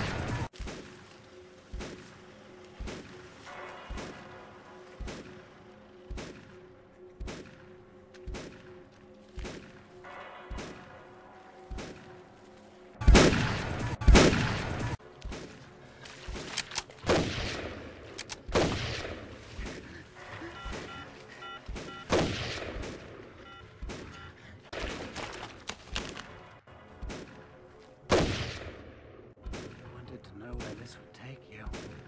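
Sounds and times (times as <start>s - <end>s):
shotgun blasts: 13.0s - 15.6s, 16.4s - 21.1s, 21.7s - 25.3s, 27.0s - 30.9s.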